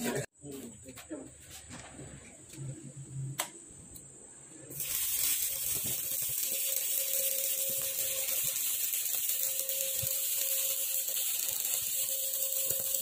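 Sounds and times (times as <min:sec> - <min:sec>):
welding arc crackling sizzle: 0:04.6 - 0:13.0.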